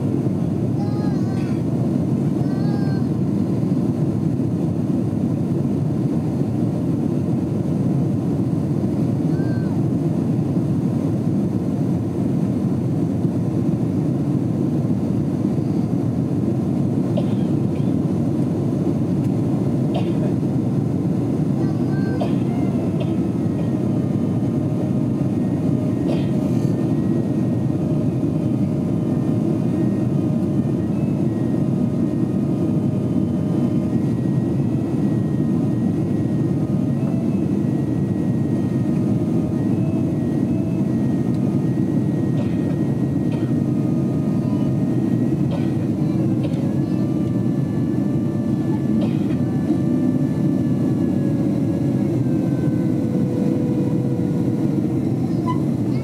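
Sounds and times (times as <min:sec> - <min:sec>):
jet engine and airflow roar: 0:00.0 - 0:56.0
faint whining tones: 0:12.2 - 0:56.0.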